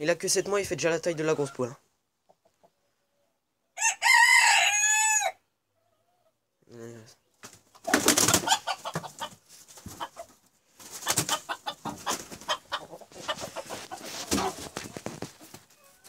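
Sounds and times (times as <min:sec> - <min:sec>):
wings flapping and scuffling: 0:07.4 - 0:16.0
rooster clucking: 0:07.8 - 0:16.0.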